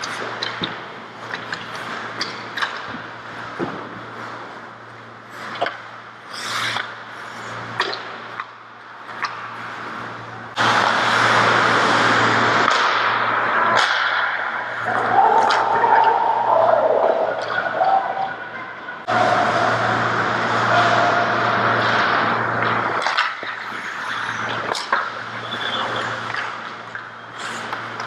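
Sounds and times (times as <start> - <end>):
hockey sticks and puck clicking: 0.0 - 4.5, 5.4 - 7.0, 7.7 - 9.9, 12.6 - 16.1, 22.6 - 28.0
loud steady rushing noise: 1.8 - 28.0
skates scraping on ice: 6.3 - 7.6, 20.5 - 28.0.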